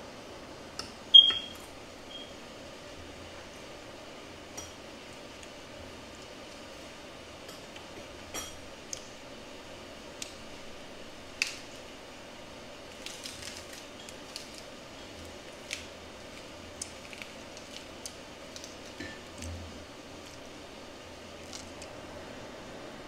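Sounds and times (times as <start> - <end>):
leaves crinkling: 12.9 - 20.5, 21.2 - 22.0.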